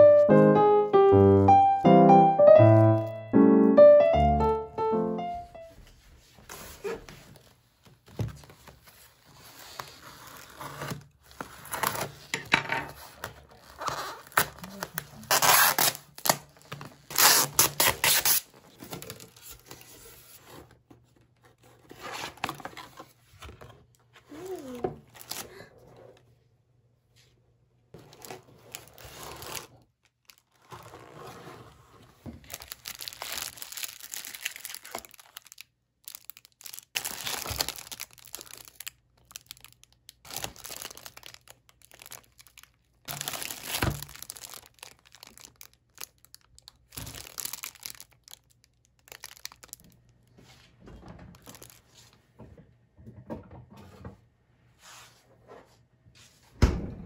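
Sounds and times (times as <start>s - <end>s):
plastic wrappers crinkling: 12.9s - 20.2s, 24.3s - 25.7s, 28.0s - 31.0s, 32.4s - 50.0s, 51.3s - 52.0s.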